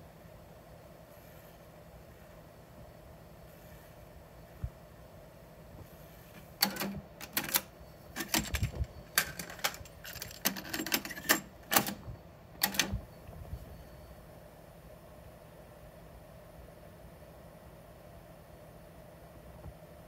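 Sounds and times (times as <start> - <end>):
cassette deck clicking and clunking: 6.4 - 13.0.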